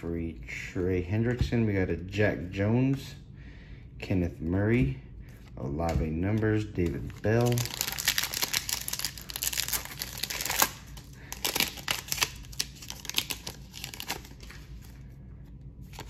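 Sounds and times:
foil wrapper tearing and crinkling: 7.1s - 14.8s.

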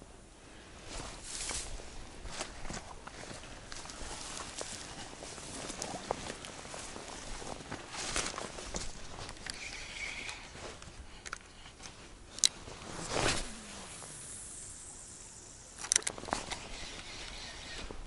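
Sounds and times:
fishing rod swish: 12.9s - 14.8s
line hissing off spool: 12.9s - 17.9s.

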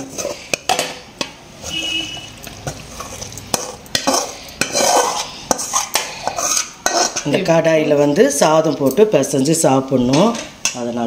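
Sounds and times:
metal ladle scraping pan: 0.0s - 8.5s.

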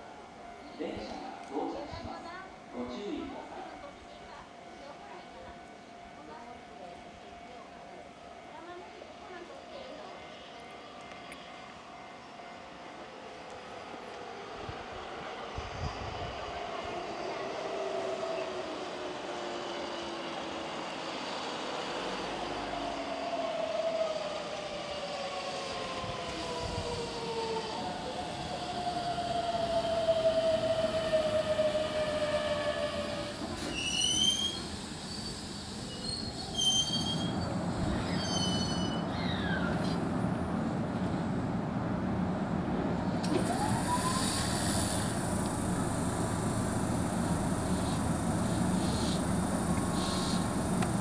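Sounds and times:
high-pitched brake squeals: 32.3s - 40.0s
electric train motors whining: 43.2s - 51.0s.

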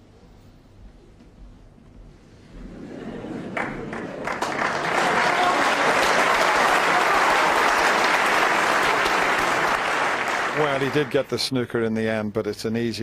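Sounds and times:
audience applauding: 3.4s - 11.4s.

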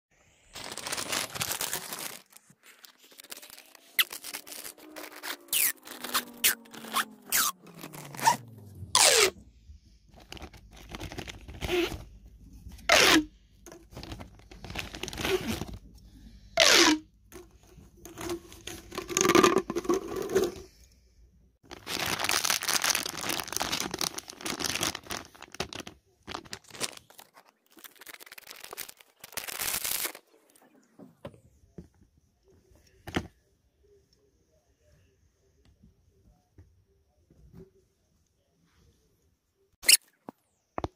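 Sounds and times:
plastic packaging crinkling: 0.4s - 8.4s, 10.1s - 12.0s, 21.6s - 30.4s.

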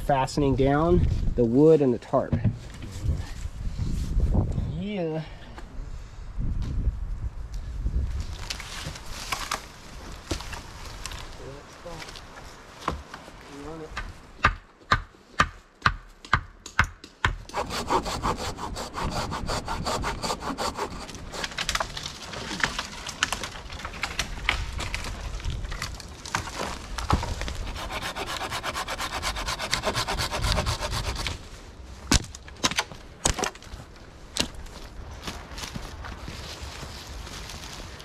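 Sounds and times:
hand saw cutting wood: 17.5s - 21.9s, 27.5s - 31.4s
sharp wooden knocks: 27.1s - 31.3s.

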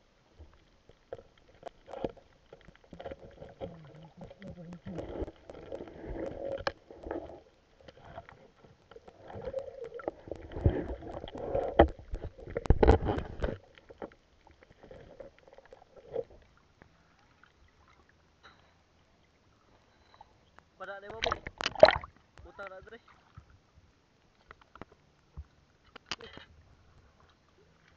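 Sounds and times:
water sloshing and splashing: 0.4s - 18.3s, 21.0s - 22.4s.

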